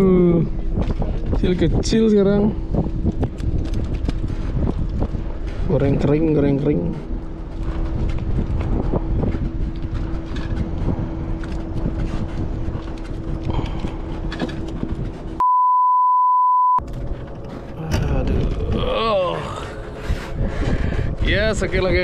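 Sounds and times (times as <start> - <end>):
wind buffeting microphone: 0.0 - 15.4, 16.8 - 22.0
steady hum: 0.0 - 15.6, 16.8 - 22.0
censor bleep: 15.4 - 16.8.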